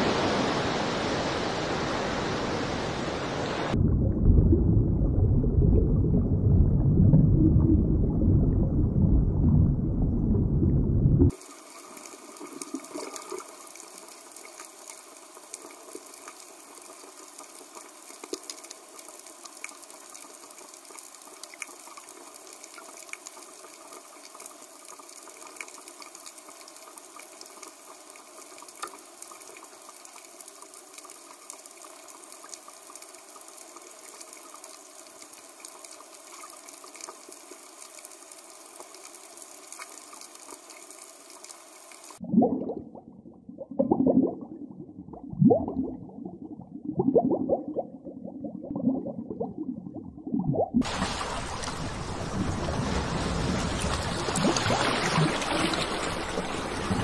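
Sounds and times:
small scattered clicks and crackles: 0:11.3 - 0:42.2
underwater watery hiss: 0:11.3 - 0:42.2, 0:50.8 - 0:56.4.

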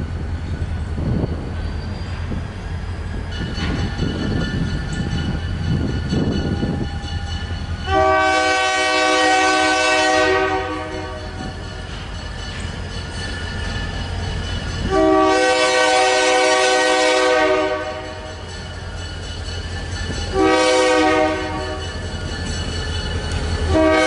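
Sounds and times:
wind on microphone: 0:00.0 - 0:07.6
diesel locomotive rumbling: 0:00.0 - 0:24.0
train air horn: 0:07.9 - 0:11.4, 0:14.9 - 0:18.3, 0:20.3 - 0:21.8, 0:23.7 - 0:24.0.

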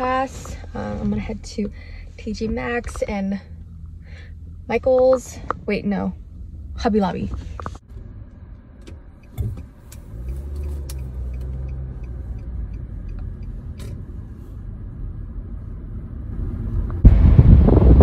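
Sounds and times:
car engine and road hum: 0:00.0 - 0:18.0
wind rushing on microphone: 0:16.0 - 0:18.0.

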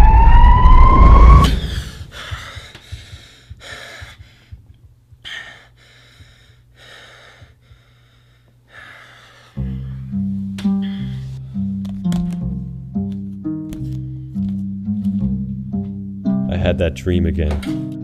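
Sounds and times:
man panting and gasping: 0:01.6 - 0:11.7
plucked-string music: 0:09.6 - 0:18.0.

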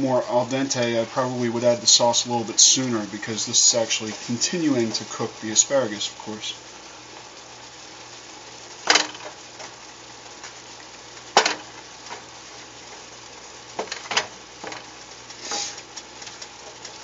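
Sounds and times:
sauce sizzling: 0:00.0 - 0:17.0
spatula clacking and scraping pan: 0:13.8 - 0:17.0.

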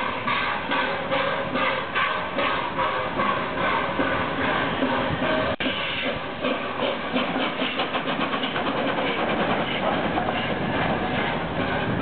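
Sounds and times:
steam hissing: 0:00.0 - 0:12.0
steam locomotive chugging: 0:00.0 - 0:12.0.

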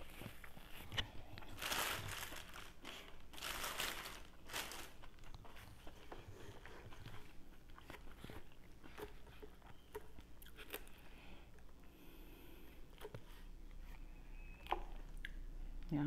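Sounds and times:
chewing: 0:05.0 - 0:11.8, 0:12.8 - 0:14.0, 0:14.6 - 0:15.5.

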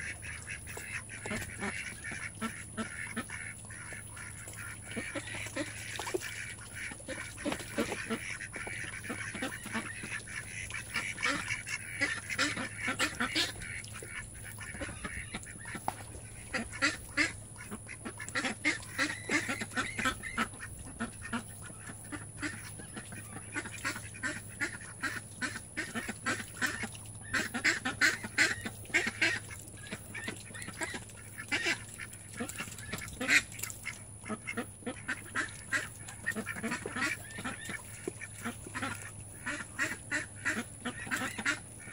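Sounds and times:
ducks calling: 0:00.0 - 0:41.9.

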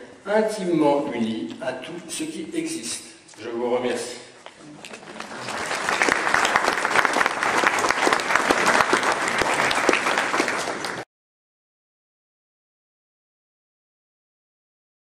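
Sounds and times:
audience applauding: 0:04.8 - 0:11.1.

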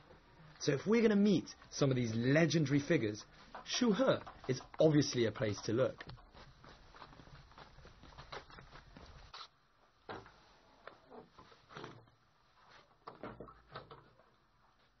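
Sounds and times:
faint knocks and clicks: 0:03.2 - 0:09.2.

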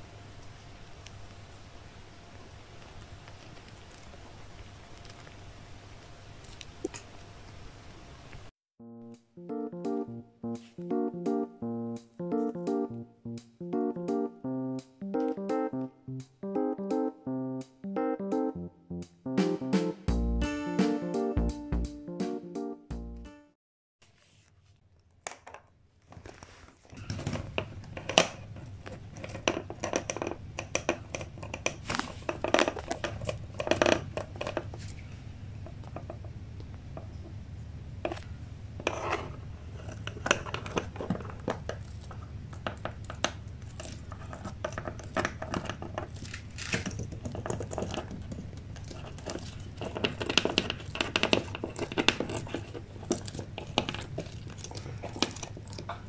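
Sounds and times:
small animal scratching wooden floor: 0:43.7 - 0:55.7.

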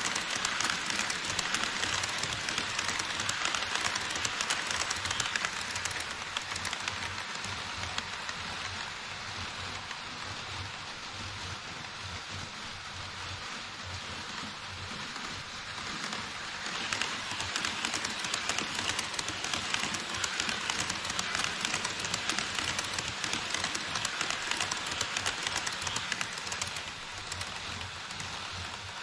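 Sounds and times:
model train wheels clicking on track: 0:00.0 - 0:29.0.

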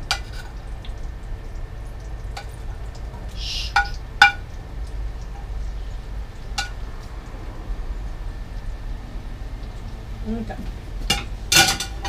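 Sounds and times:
plate clinking against frying pan: 0:11.1 - 0:12.0.

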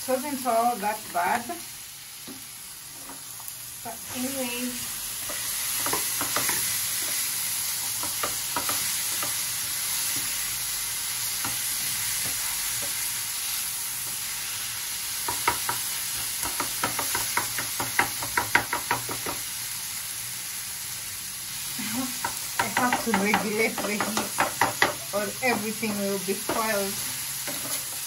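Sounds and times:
food sizzling in a frying pan: 0:00.0 - 0:28.0
spatula knocking and scraping pan: 0:05.2 - 0:09.4, 0:15.2 - 0:19.5, 0:22.2 - 0:28.0.

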